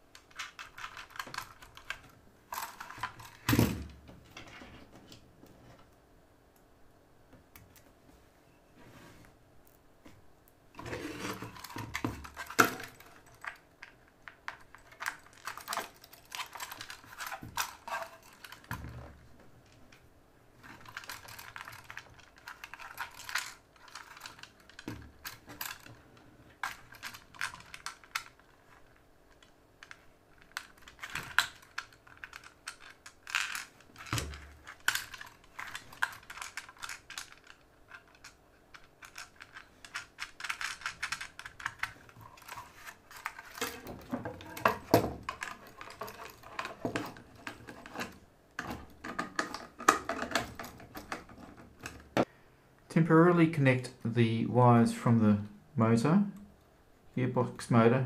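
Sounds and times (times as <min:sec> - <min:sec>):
faint steady hum: 0:00.0 - 0:58.0
plastic parts clicking and tapping: 0:00.1 - 0:05.2, 0:11.2 - 0:20.0, 0:20.6 - 0:52.3.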